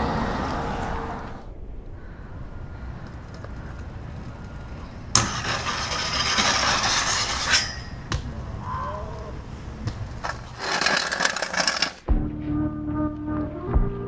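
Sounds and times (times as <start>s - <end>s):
scooter grinding on metal rail: 3.2s - 8.2s, 9.4s - 12.0s
scooter landing clack: 5.1s - 8.4s, 9.8s - 12.0s.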